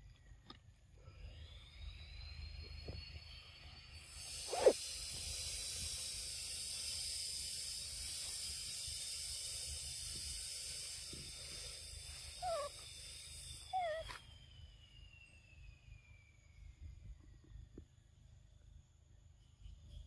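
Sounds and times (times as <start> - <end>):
insects hissing: 1.7 - 16.5
thin sliding tone: 4.4 - 4.8
squeaky animal calls: 4.5 - 4.8, 12.4 - 12.8, 13.7 - 14.1.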